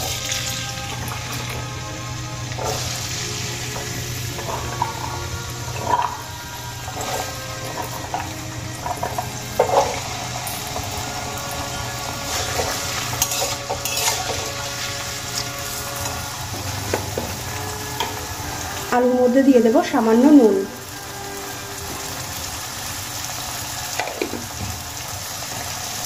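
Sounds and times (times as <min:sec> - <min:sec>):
potatoes sizzling in oil: 0:00.0 - 0:26.0
spatula scraping and stirring: 0:02.5 - 0:18.7.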